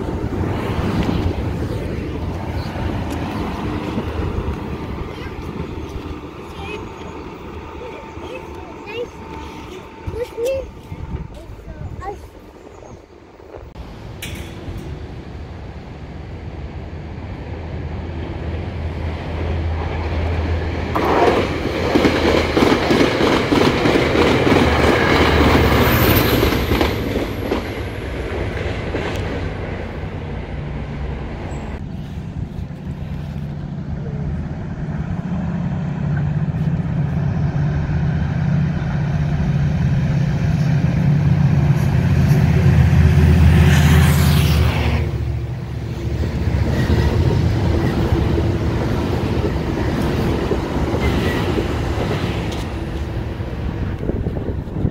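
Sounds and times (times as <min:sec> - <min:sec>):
diesel locomotive engine drone: 0:00.0 - 0:54.9
train wheels clickety-clack: 0:20.9 - 0:29.8, 0:46.0 - 0:53.2.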